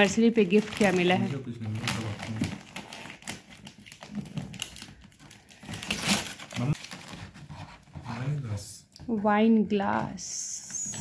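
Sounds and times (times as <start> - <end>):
wrapping paper crinkling and tearing: 0.0 - 7.5.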